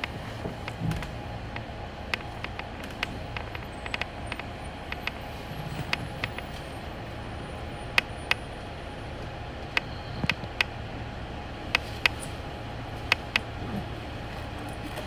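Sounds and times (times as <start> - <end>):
bus engine and road rumble: 0.0 - 15.0
sharp clicks: 0.7 - 5.2.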